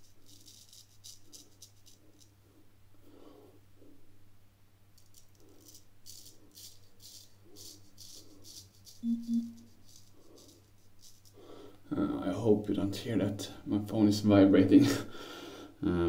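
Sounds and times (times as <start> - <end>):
razor scraping stubble: 5.1 - 11.4
phone vibrating: 9.0 - 9.7.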